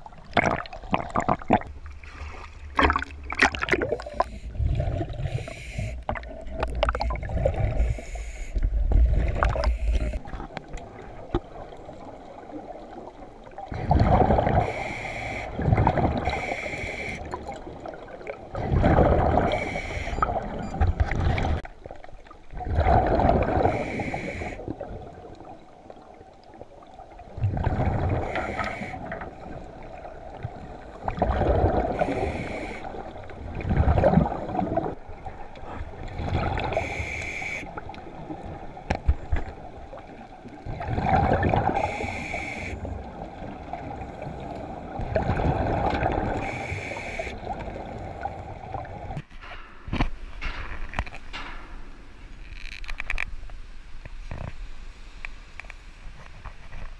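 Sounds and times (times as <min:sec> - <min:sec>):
bubbling exhalations: 0:00.0 - 0:08.0
regulator hissing inhalations: 0:05.3 - 0:06.0, 0:07.8 - 0:08.6, 0:14.6 - 0:15.6, 0:16.3 - 0:17.3, 0:19.5 - 0:20.2, 0:23.7 - 0:24.6, 0:28.3 - 0:29.0, 0:32.0 - 0:32.9, 0:36.8 - 0:37.7, 0:41.8 - 0:42.9, 0:46.4 - 0:47.4.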